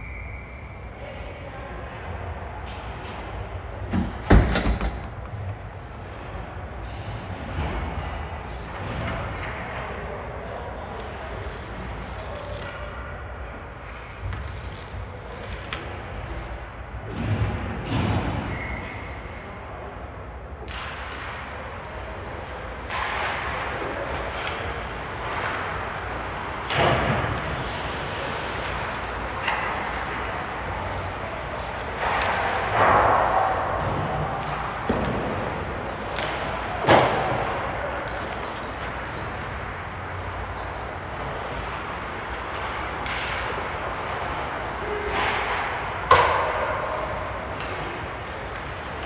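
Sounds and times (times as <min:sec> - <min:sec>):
skate scrape: 0:10.9 - 0:12.8, 0:14.3 - 0:16.4.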